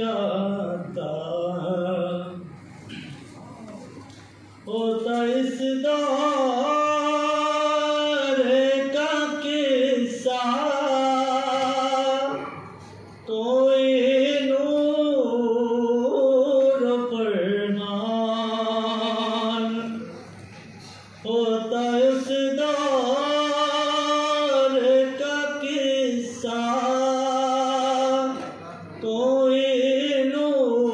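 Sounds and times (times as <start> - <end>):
man singing devotional chant: 0.0 - 2.4, 4.7 - 12.6, 13.2 - 20.1, 21.2 - 30.9
breaths: 20.5 - 21.2.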